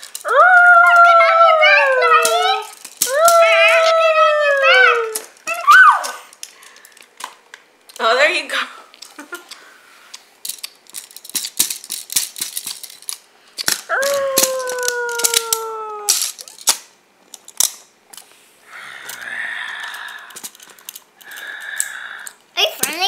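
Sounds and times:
person hooting: 0:00.2 - 0:06.2, 0:13.9 - 0:16.2
breathy hiss: 0:18.3 - 0:22.6.

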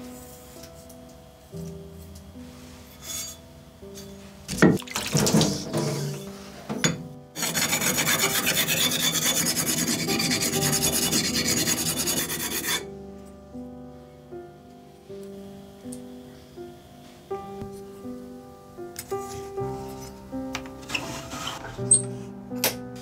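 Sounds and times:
knife rasping on sharpening plate: 0:07.4 - 0:12.8.

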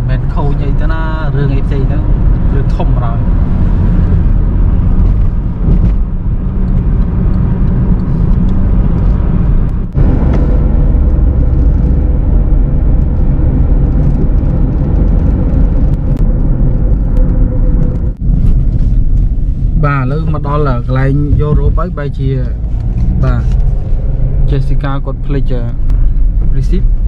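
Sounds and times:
car road and engine rumble: 0:00.0 - 0:27.0.

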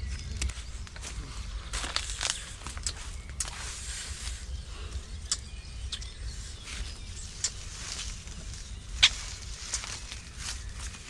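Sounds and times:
footsteps on dirt path: 0:00.1 - 0:03.8
twigs crackling and snapping: 0:00.2 - 0:04.2, 0:05.0 - 0:11.0.

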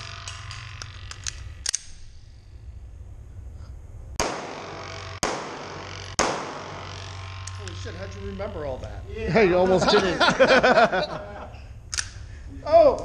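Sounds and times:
pistol handling clicks: 0:00.2 - 0:02.2, 0:11.9 - 0:12.2
pistol shots ringing indoors: 0:04.2 - 0:07.6.

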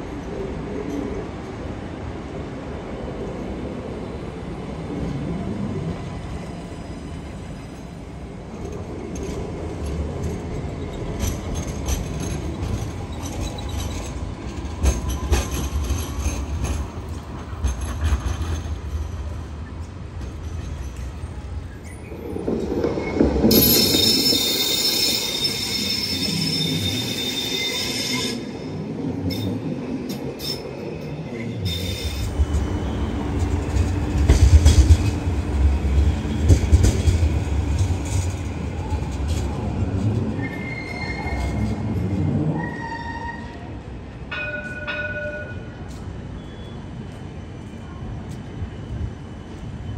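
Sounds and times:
trams rolling on street track: 0:00.0 - 0:49.9
high wheel squeal: 0:23.0 - 0:28.7, 0:31.6 - 0:33.2, 0:40.3 - 0:41.7.

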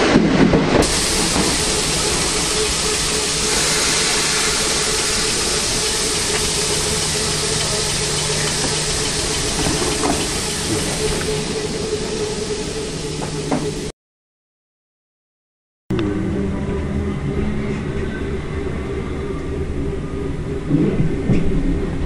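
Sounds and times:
train rushing and hissing: 0:00.0 - 0:13.9
constant low hum: 0:00.8 - 0:13.9.

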